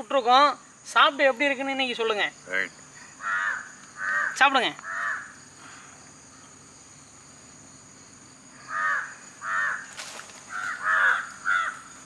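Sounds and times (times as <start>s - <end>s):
high-pitched insect drone: 0.0s - 12.0s
crow cawing: 3.2s - 5.4s, 8.6s - 12.0s.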